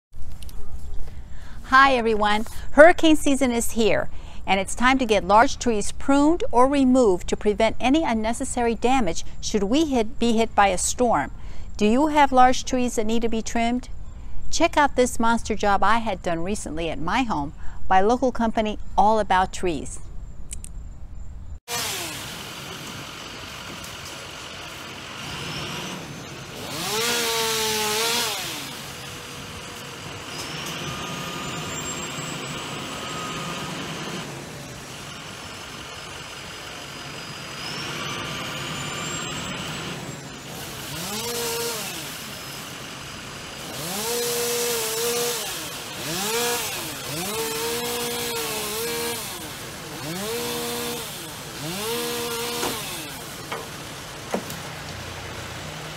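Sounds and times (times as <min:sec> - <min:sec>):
chainsaw revving: 0:21.7 - 0:55.9.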